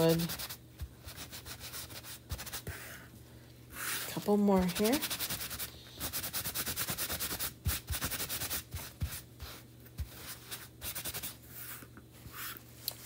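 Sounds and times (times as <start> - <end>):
wax rubbed on wood: 3.8 - 8.6.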